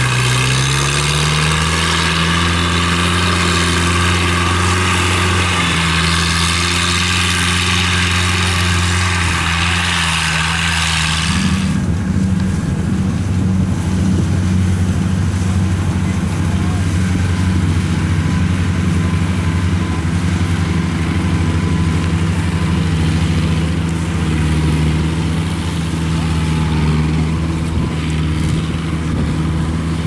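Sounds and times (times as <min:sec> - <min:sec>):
crawler engine droning: 0:00.0 - 0:30.0
lower pulsing engine: 0:00.0 - 0:30.0.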